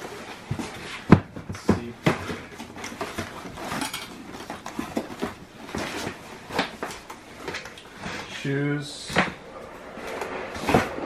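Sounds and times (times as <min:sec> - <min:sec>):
items knocking and clattering: 0:00.0 - 0:08.2
cardboard rustling and scraping: 0:00.0 - 0:11.0.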